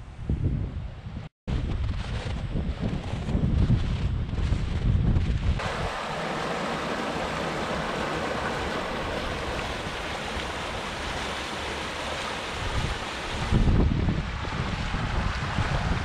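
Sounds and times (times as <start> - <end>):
wind buffeting microphone: 0.0 - 16.0
creek water rushing: 5.6 - 16.0.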